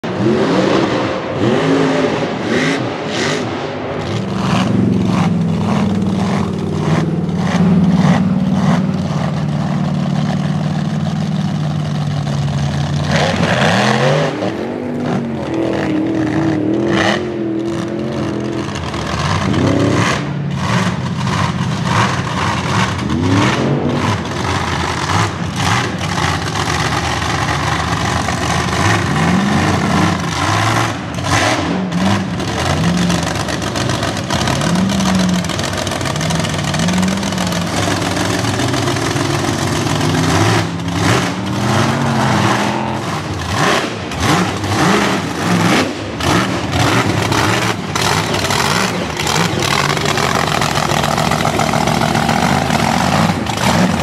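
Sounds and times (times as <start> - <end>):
truck engine revving hard: 0.0 - 54.0.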